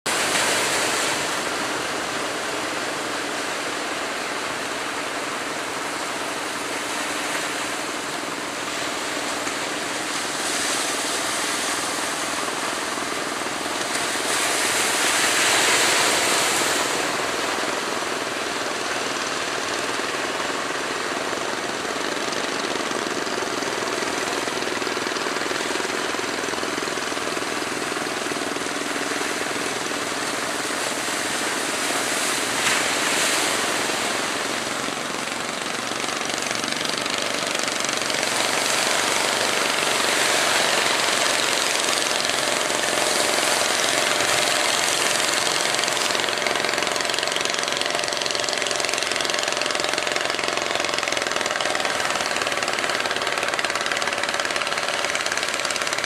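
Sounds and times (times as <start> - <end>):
rough surf rushing: 0.1 - 56.0
wave breaking: 23.9 - 49.0.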